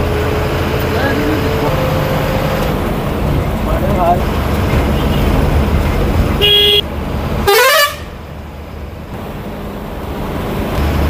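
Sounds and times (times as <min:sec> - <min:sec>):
bus engine rumble: 0:00.0 - 0:11.0
vehicle horn honking: 0:04.9 - 0:05.4, 0:06.4 - 0:06.8, 0:07.4 - 0:08.1.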